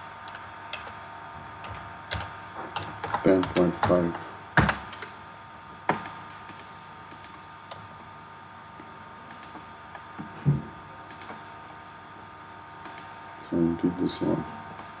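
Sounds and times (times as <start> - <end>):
mouse and keyboard clicks: 11.1 - 11.4.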